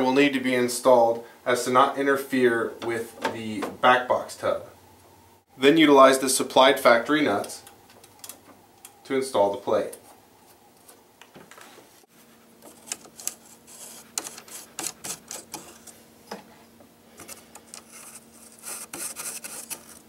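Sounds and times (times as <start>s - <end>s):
faint steady hum: 0.0s - 20.0s
metallic clicks and scrapes of nuts: 12.6s - 16.0s.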